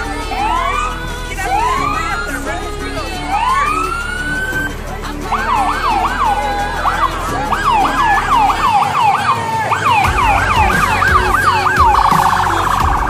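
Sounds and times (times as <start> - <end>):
police car siren wailing: 0.2 - 2.4, 5.4 - 13.0.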